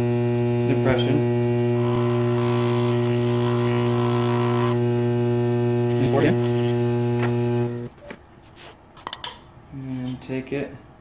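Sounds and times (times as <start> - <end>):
vibrator machine humming: 0.0 - 8.0.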